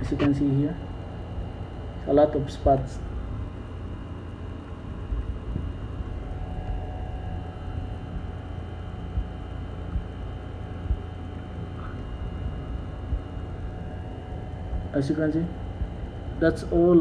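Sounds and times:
faint steady tones: 0:00.0 - 0:17.0
low background rumble: 0:00.0 - 0:17.0
soft low thumps: 0:04.7 - 0:15.0, 0:15.6 - 0:16.4.

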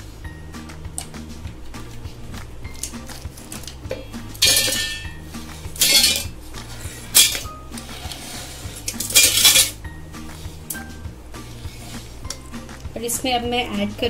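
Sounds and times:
caramel shards clattering into steel jar: 0:04.4 - 0:05.1, 0:05.8 - 0:06.4, 0:07.1 - 0:07.5, 0:08.9 - 0:09.8.

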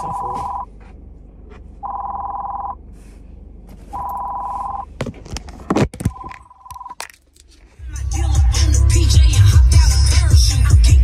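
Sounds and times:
dashboard warning chime beeping: 0:00.0 - 0:00.8, 0:01.8 - 0:02.9, 0:03.9 - 0:05.0, 0:06.0 - 0:07.0
handling knocks and rustles: 0:05.0 - 0:07.7.

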